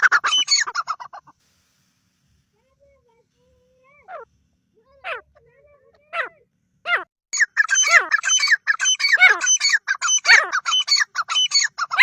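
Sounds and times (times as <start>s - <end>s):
francolins calling: 0.0s - 1.3s, 6.9s - 12.0s.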